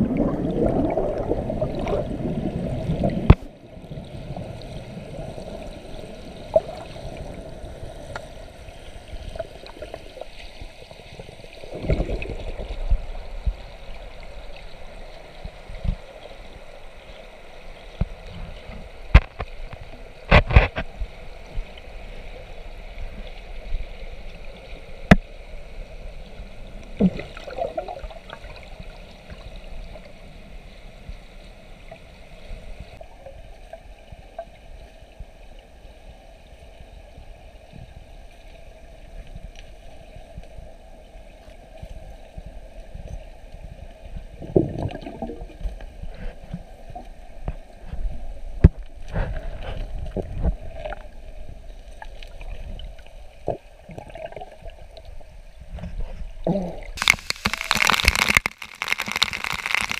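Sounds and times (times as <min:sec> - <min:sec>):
churning bubbles rumbling: 0:00.0 - 0:10.3, 0:11.1 - 0:13.9, 0:26.8 - 0:29.5, 0:44.1 - 0:47.1, 0:47.9 - 0:55.2, 0:56.4 - 0:59.9
steady watery wash: 0:00.0 - 0:59.9.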